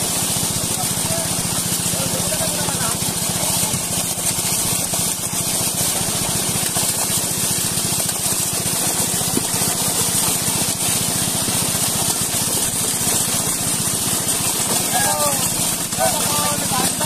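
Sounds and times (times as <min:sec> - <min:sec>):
fish thrashing and splashing water: 0:00.0 - 0:17.0.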